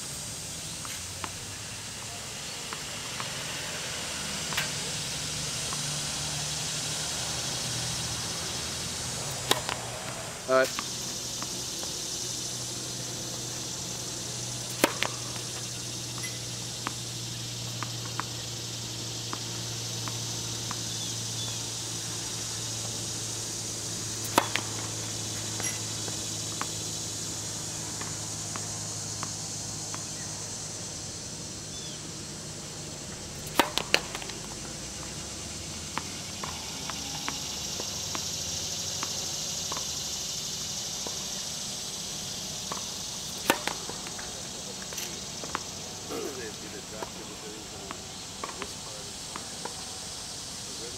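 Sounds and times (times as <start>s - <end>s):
steady high hiss: 0.0s - 50.9s
racket hitting tennis ball: 4.4s - 6.0s, 8.6s - 30.2s, 33.3s - 38.3s, 42.6s - 46.4s
ball bouncing on court: 9.2s - 12.0s, 14.6s - 18.6s, 19.3s - 21.6s, 24.2s - 26.8s, 33.4s - 35.1s, 35.9s - 38.3s, 42.7s - 44.3s.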